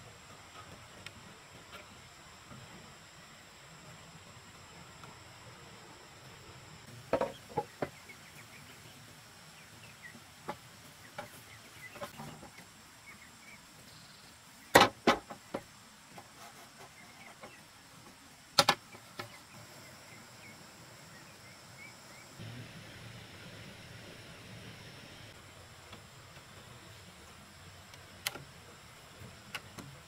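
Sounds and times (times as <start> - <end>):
hollow knocks of bamboo poles: 7.1 - 8.0, 14.7 - 16.3.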